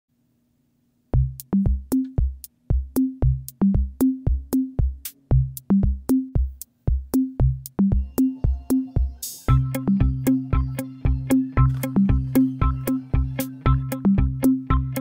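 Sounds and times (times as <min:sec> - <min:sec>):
electronic drum-machine beat: 0:01.2 - 0:15.0
short bass notes: 0:09.5 - 0:15.0.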